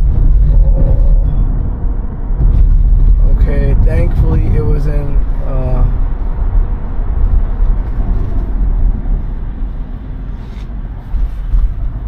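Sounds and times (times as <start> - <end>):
road and tyre noise in car: 0.0 - 12.0.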